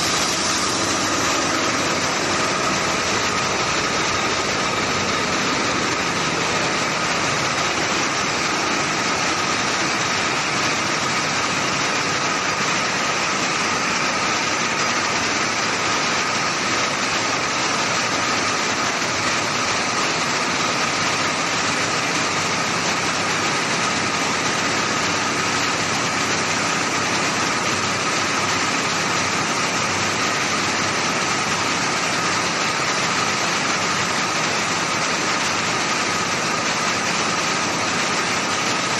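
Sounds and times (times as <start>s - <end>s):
thin steady whine: 0.0s - 9.3s
knitting machines running: 0.0s - 38.9s.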